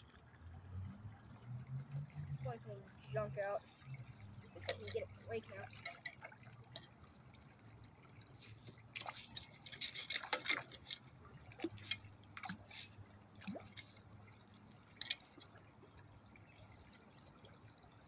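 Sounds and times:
water splashing: 0:00.0 - 0:18.0
rake scraping on grate: 0:08.4 - 0:11.1.

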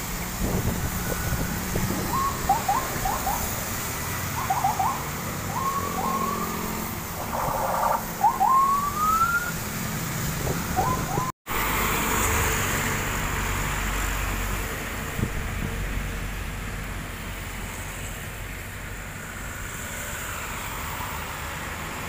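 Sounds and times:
heavy truck rumbling by: 0:00.0 - 0:21.0
vehicles passing on wet road: 0:00.0 - 0:22.0
short rising whistles: 0:01.1 - 0:03.5, 0:04.4 - 0:09.6.

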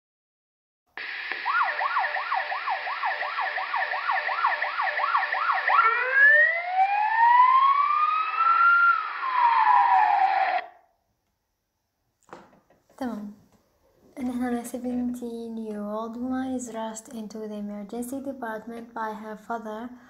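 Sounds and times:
ambulance siren: 0:01.0 - 0:10.8.

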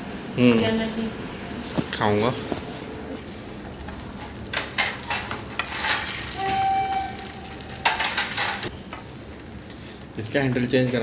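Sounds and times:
egg sizzling in frying pan: 0:03.2 - 0:10.5.

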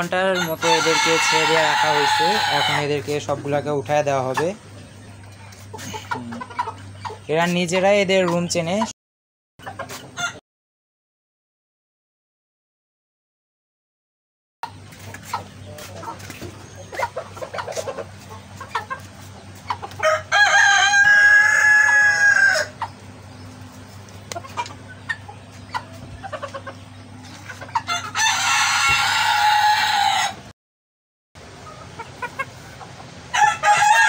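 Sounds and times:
chicken clucking: 0:00.1 - 0:08.9, 0:09.6 - 0:10.4, 0:14.6 - 0:30.4, 0:31.4 - 0:34.0
rooster crowing: 0:00.4 - 0:02.9, 0:20.0 - 0:22.8, 0:27.9 - 0:30.5, 0:33.3 - 0:34.0.

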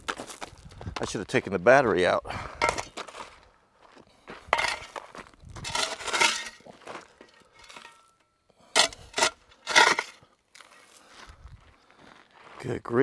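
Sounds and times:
shovel scraping gravel: 0:02.6 - 0:03.4, 0:04.5 - 0:11.0
gravel clattering onto drill: 0:04.5 - 0:08.2.

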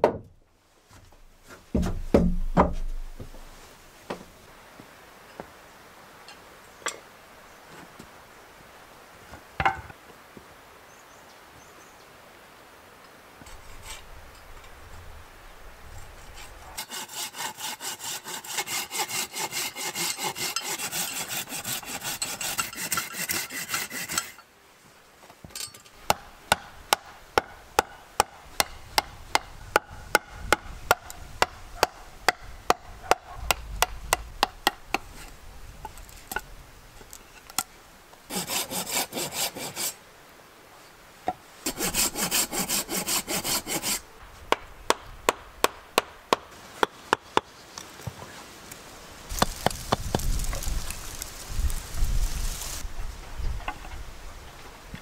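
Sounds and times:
baton knocking on knife in wood: 0:01.8 - 0:03.2
handsaw cutting log: 0:16.4 - 0:24.4, 0:38.3 - 0:40.0, 0:41.6 - 0:44.1.

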